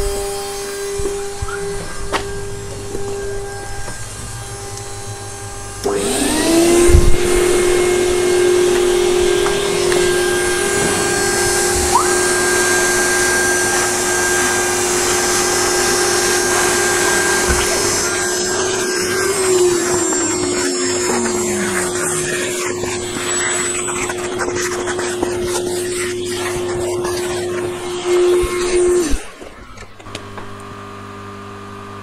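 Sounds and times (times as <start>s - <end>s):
shop vacuum whining: 0.0s - 32.0s
suction rushing: 5.1s - 29.5s.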